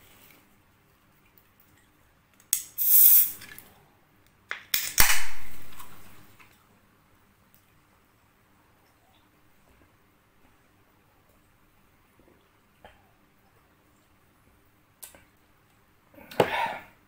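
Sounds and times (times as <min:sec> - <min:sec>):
gas hissing from can: 0:02.6 - 0:03.4.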